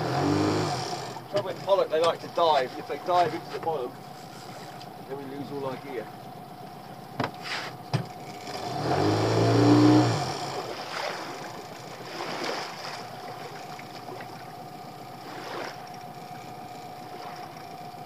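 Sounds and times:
fishing reel whirring: 9.4 - 18.0
faint hum: 10.4 - 18.0.

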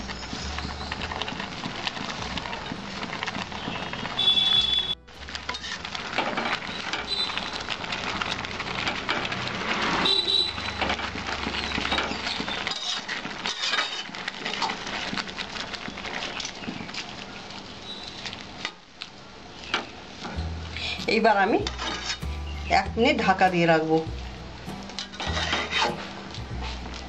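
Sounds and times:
leaves rustling: 0.0 - 27.0
metal spatula scraping a pot: 5.4 - 7.7, 10.6 - 14.7, 20.8 - 22.3, 24.8 - 27.0.

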